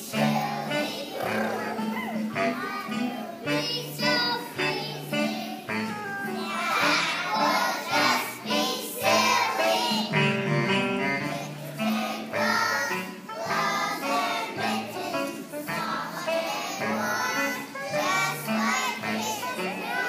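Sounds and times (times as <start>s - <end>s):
children singing together: 0.0s - 20.0s.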